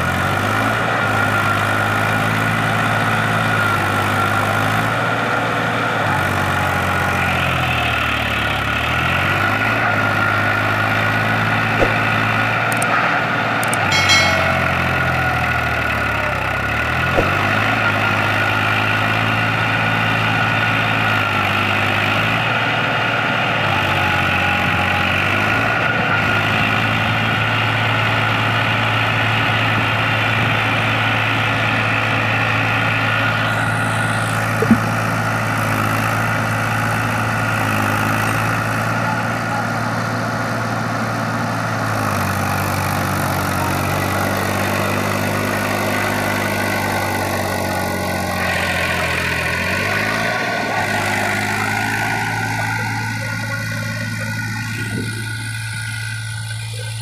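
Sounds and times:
sharp knock: 0:11.8 - 0:12.3, 0:13.8 - 0:15.4, 0:34.6 - 0:34.9
tractor diesel engine running: 0:16.6 - 0:57.0.

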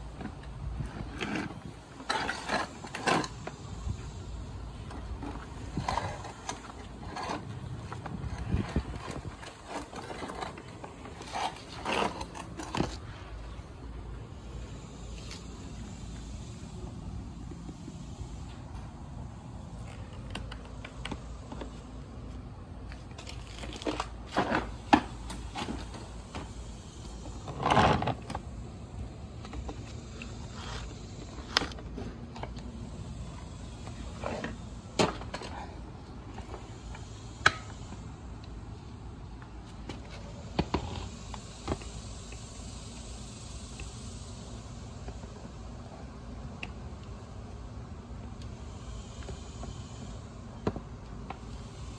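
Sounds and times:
low background noise: 0:00.0 - 0:51.9
scraping rustle: 0:05.0 - 0:13.6.

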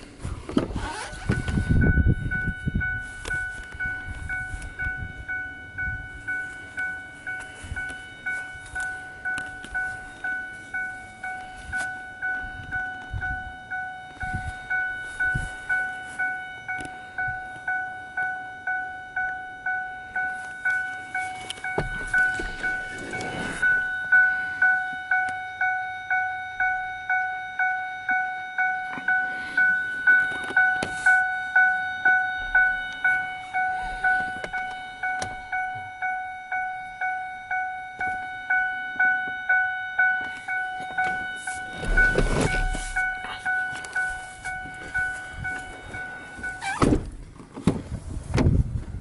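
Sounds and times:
car door opening with a clunk: 0:00.4 - 0:01.8, 0:21.4 - 0:23.9, 0:40.3 - 0:43.9, 0:44.5 - 0:49.0
door-open warning chime dinging: 0:00.8 - 0:47.2.

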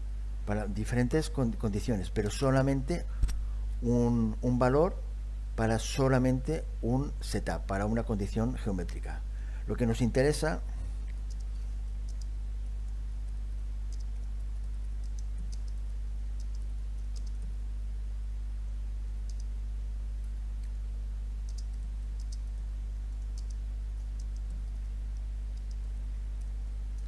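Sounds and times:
steady low hum: 0:00.0 - 0:27.0
keyboard keystrokes clicking: 0:16.4 - 0:17.5, 0:21.5 - 0:22.5, 0:23.2 - 0:24.6.

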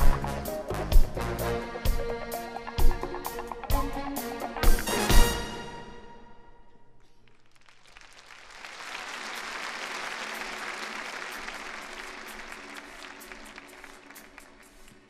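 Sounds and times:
audience applauding: 0:07.2 - 0:15.0.

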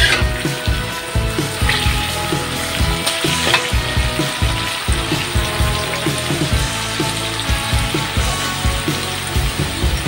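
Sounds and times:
metal spatula scraping wok: 0:00.0 - 0:00.8, 0:01.7 - 0:03.9
beans sizzling in oil: 0:00.0 - 0:10.0.

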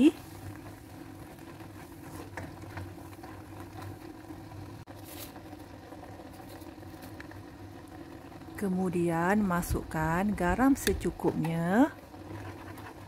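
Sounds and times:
food sauteing in a wok: 0:00.0 - 0:13.0
spatula scraping and stirring: 0:00.1 - 0:07.3, 0:10.8 - 0:13.0.

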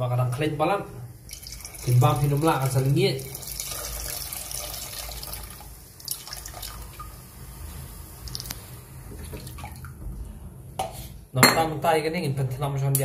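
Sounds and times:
water pouring into liquid: 0:01.3 - 0:07.2, 0:08.2 - 0:08.6.

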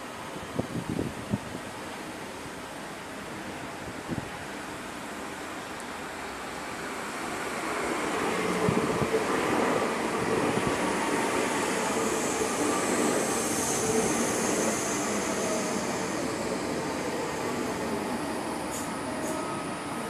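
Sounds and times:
electric train rolling: 0:06.3 - 0:20.0.

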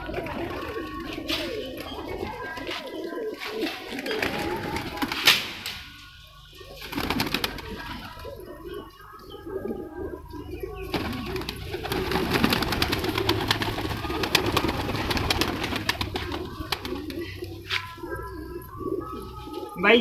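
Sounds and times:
wings flapping and scuffling: 0:00.0 - 0:06.0, 0:06.7 - 0:08.4, 0:10.8 - 0:18.5
pigeons cooing: 0:00.0 - 0:20.0.

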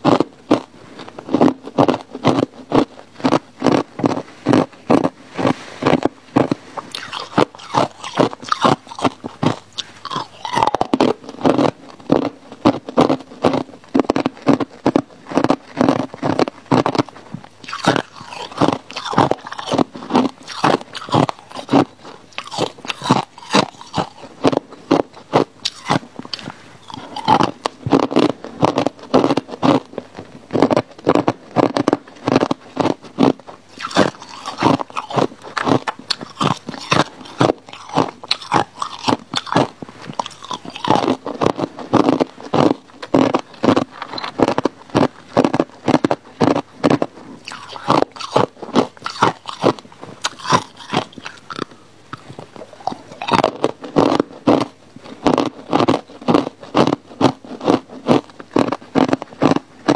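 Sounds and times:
chewing: 0:00.0 - 0:59.9
ice crunching between teeth: 0:00.0 - 0:59.9.

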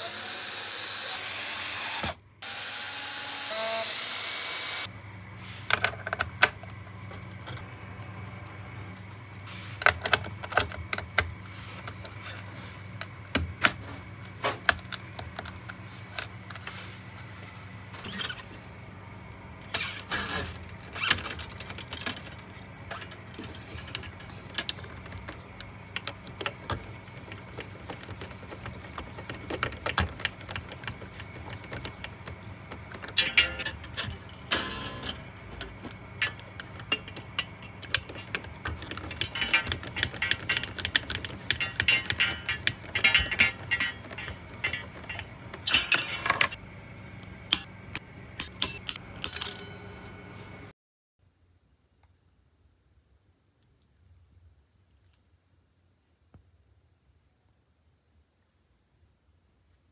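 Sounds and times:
cordless drill: 0:00.0 - 0:04.9
steady low hum: 0:04.8 - 0:50.7
string winder clicking: 0:19.7 - 0:46.6.

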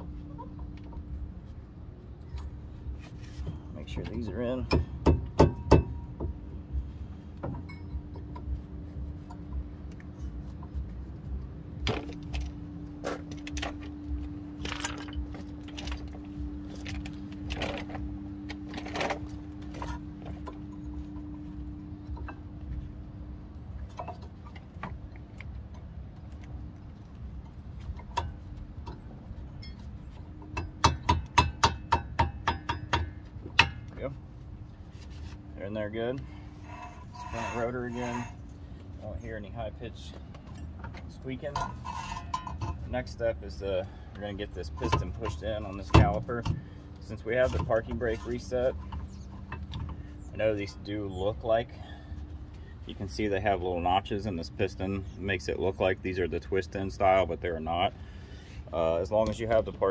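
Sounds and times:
metal-on-metal clinks: 0:14.6 - 0:16.1.

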